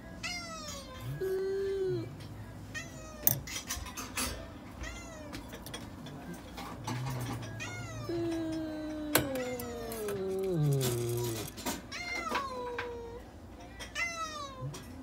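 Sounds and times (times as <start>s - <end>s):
cat meowing: 7.4s - 13.2s.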